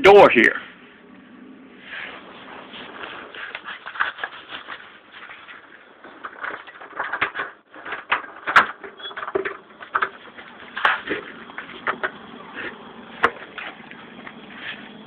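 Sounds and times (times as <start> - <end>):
scrapes and clicks: 1.9 - 8.5.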